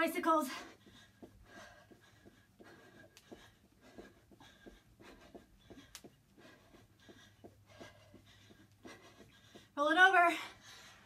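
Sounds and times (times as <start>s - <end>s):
faint breathing: 0.5s - 9.8s.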